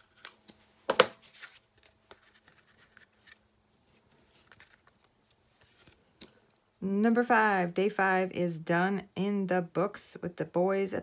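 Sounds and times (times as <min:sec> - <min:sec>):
card handling noises: 0:00.0 - 0:06.5.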